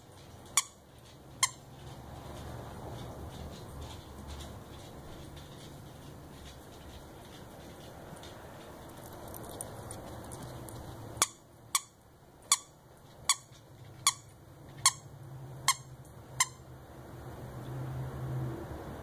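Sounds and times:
dog toy squeaking: 0.5s - 0.8s, 1.4s - 1.7s, 11.2s - 16.7s.

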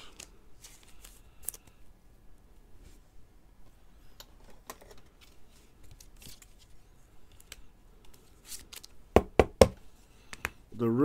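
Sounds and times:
plastic sleeves rustling: 0.0s - 1.8s, 4.4s - 9.0s.

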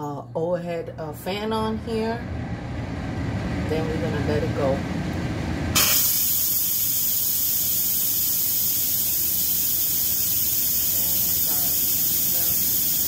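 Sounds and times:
steam hissing from valve: 5.8s - 13.0s.

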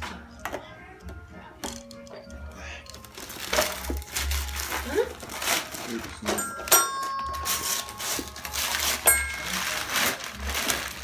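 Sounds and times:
toy xylophone dings: 6.3s - 8.3s.

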